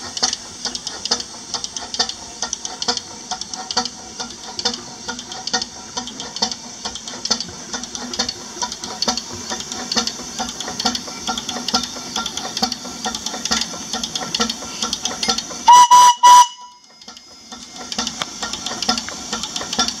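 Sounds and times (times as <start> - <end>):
steam engine exhaust beating: 0.0 - 20.0
whistle toots: 15.7 - 16.8.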